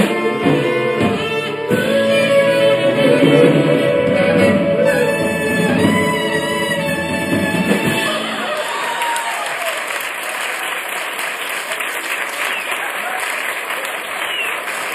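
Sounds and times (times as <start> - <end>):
audience whooping: 1.8 - 14.9
audience applause: 4.0 - 14.9.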